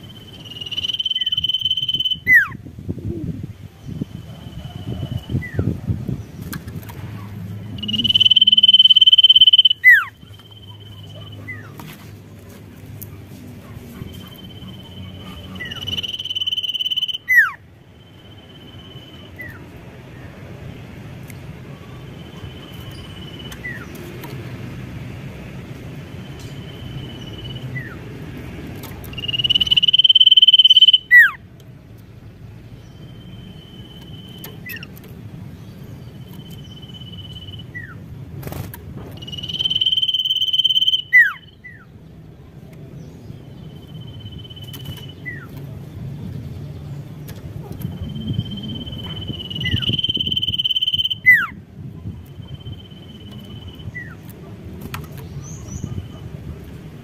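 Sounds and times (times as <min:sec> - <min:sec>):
bird singing whistles: 0:00.1 - 0:02.6, 0:07.8 - 0:10.9, 0:14.1 - 0:17.6, 0:29.1 - 0:31.4, 0:39.2 - 0:41.9, 0:48.0 - 0:51.5.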